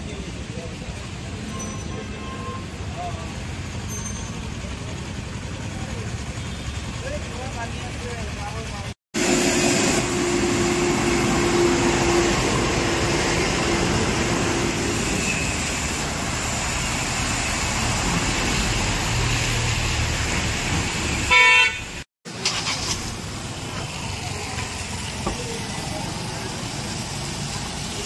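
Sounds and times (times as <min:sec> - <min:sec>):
vehicle engines: 0:00.0 - 0:28.0
vehicle horn toot: 0:21.3 - 0:22.0.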